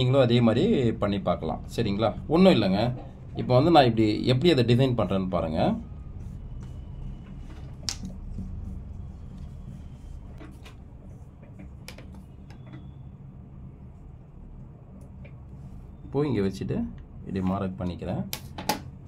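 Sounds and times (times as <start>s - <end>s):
steady low hum: 0.0s - 19.0s
cloth being smoothed: 6.2s - 11.4s.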